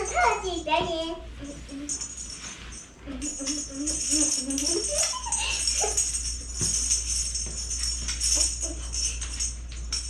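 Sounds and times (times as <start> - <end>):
high jingling bells: 0.0 - 10.0.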